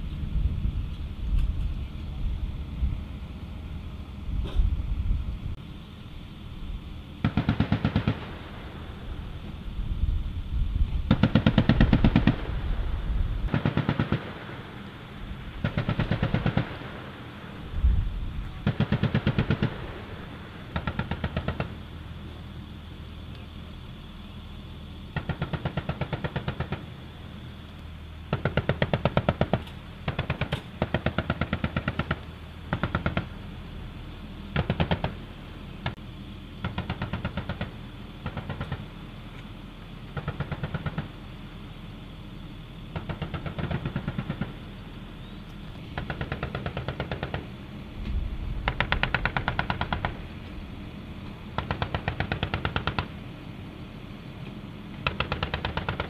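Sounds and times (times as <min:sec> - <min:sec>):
steady low rumble: 0:00.0 - 0:55.7
heavy machine gun bursts: 0:07.2 - 0:08.7, 0:11.1 - 0:12.6, 0:13.4 - 0:14.9, 0:15.6 - 0:17.5, 0:18.6 - 0:21.8.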